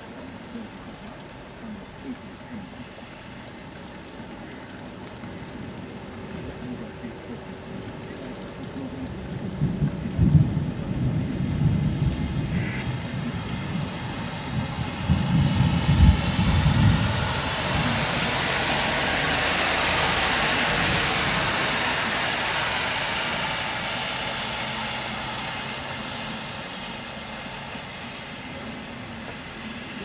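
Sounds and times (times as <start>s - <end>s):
thunder rumbling: 5.5s - 29.5s
long rushing hiss: 16.6s - 30.0s.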